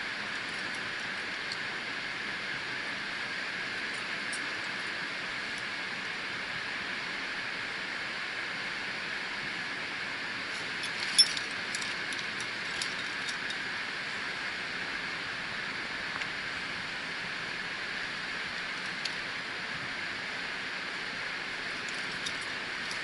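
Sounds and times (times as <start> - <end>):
steady hiss: 0.0 - 23.0
climbing hardware clinking: 10.5 - 13.7, 21.7 - 23.0.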